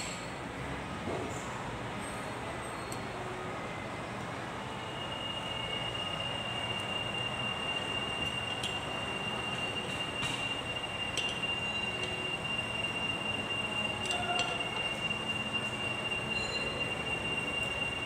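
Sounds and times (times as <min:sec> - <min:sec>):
high-pitched whine: 0:04.6 - 0:18.0.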